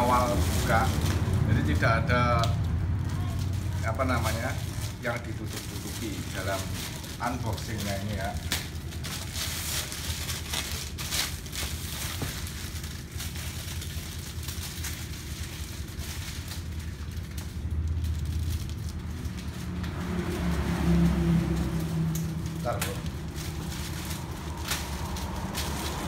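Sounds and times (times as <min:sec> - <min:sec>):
plastic bag crinkling: 0:00.0 - 0:26.0
sharp crackles: 0:00.0 - 0:26.0
scissors cutting plastic: 0:21.5 - 0:26.0.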